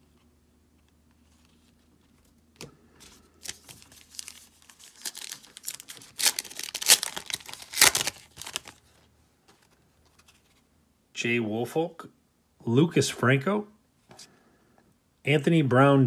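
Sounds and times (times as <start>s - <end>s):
card pack wrapper tearing and crinkling: 3.4s - 8.9s.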